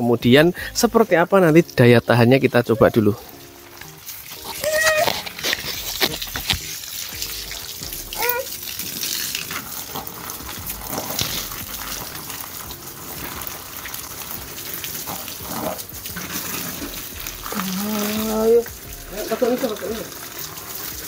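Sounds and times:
hose water spraying on fabric: 0.0s - 21.0s
sharp water splashes: 2.7s - 21.0s.

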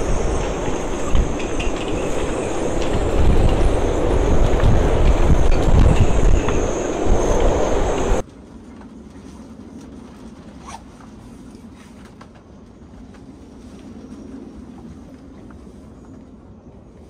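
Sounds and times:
high wind whistle: 0.0s - 8.2s
storm wind buffeting microphone: 0.0s - 8.2s.

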